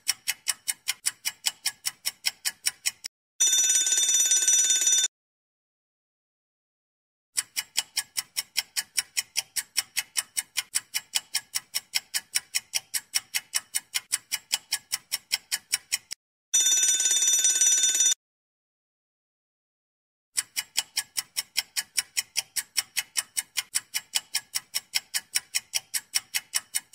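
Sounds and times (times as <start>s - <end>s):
clock ticking: 0.0s - 5.0s, 7.4s - 18.1s, 20.4s - 26.9s
bell ringing: 3.4s - 5.1s.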